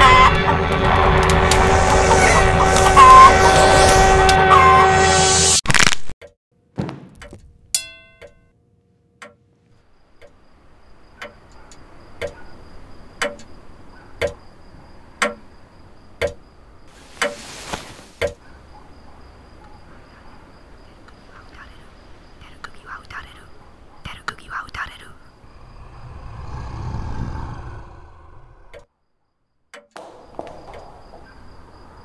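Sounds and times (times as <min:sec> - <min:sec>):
clock ticking: 0:13.2 - 0:13.5.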